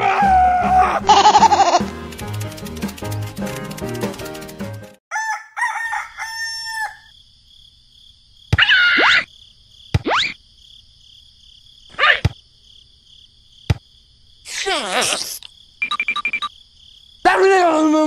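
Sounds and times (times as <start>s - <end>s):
background music: 0.0s - 5.0s
rooster crowing: 5.1s - 7.2s.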